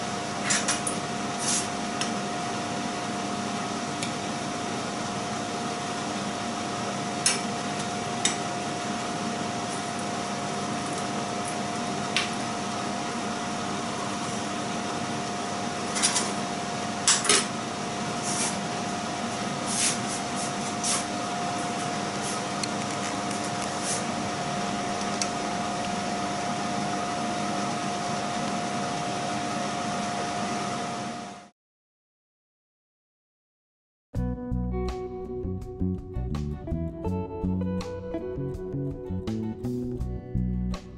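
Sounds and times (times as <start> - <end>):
motor hum with whine: 0.0 - 31.5.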